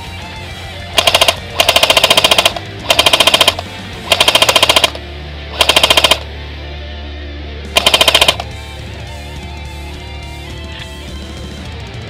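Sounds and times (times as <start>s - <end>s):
airsoft rifle firing bursts: 1.0s - 5.0s, 5.6s - 6.3s, 7.8s - 8.5s.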